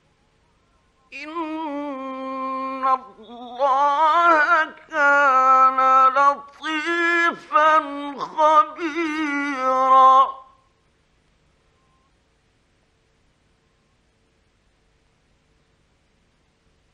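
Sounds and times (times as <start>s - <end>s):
man chanting melodically: 1.1s - 10.6s.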